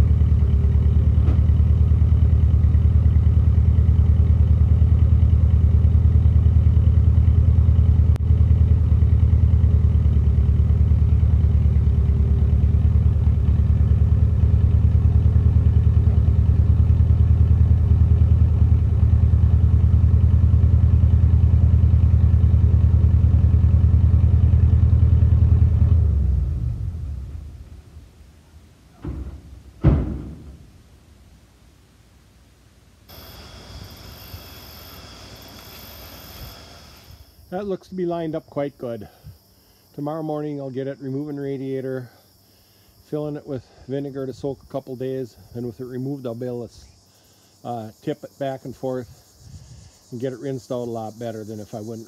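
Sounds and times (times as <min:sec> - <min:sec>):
truck engine running: 0:00.0 - 0:31.0, 0:33.1 - 0:37.8.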